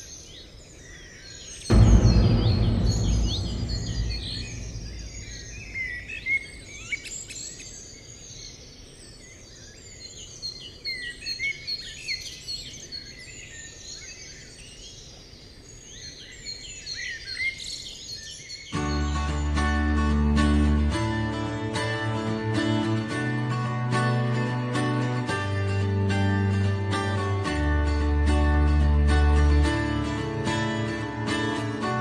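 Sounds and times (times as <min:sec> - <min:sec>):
songbirds chirping and singing: 0:00.0 - 0:19.8
deep low boom: 0:01.7 - 0:06.5.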